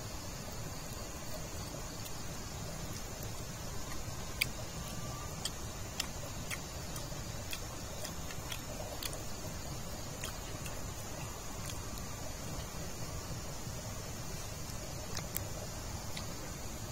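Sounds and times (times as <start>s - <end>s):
steady background hiss: 0.0s - 16.9s
mouth clicks and smacks chewing: 2.9s - 12.8s, 14.6s - 16.4s.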